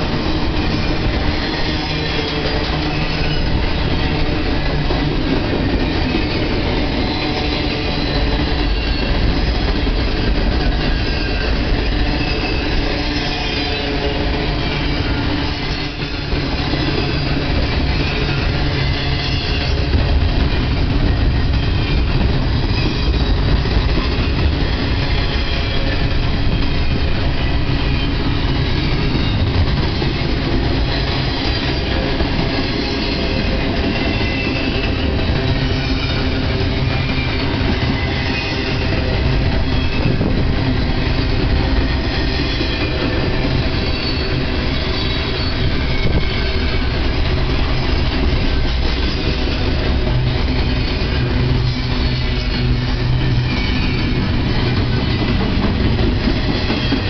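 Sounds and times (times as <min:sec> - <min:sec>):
train wheels rumbling on rail: 0:00.0 - 0:57.0
faint high wheel squeal: 0:10.8 - 0:19.8, 0:31.4 - 0:40.8, 0:41.8 - 0:49.6, 0:50.3 - 0:55.3.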